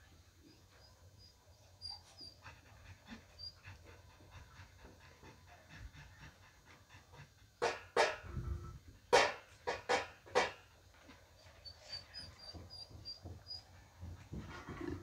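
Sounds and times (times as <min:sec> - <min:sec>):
small dogs panting: 0:00.6 - 0:07.6.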